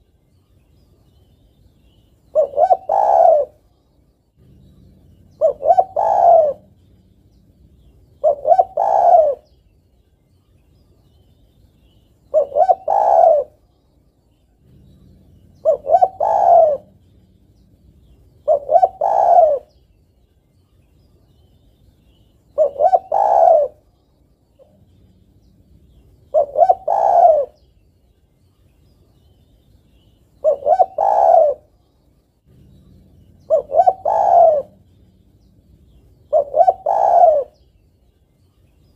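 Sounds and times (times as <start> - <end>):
dove cooing: 2.3 - 3.7, 4.4 - 9.6, 12.3 - 13.7, 14.5 - 19.8, 22.5 - 24.0, 24.6 - 27.7, 30.4 - 31.8, 32.5 - 37.8.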